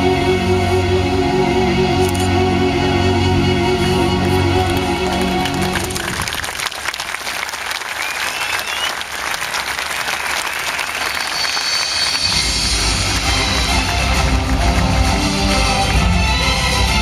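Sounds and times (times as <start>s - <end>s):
crowd applauding: 4.6s - 16.3s.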